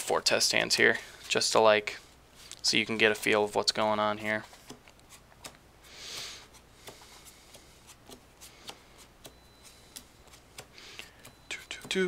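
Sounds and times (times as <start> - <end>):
cards sliding: 4.4 - 11.4
cards tapping on cloth mat: 6.8 - 11.4.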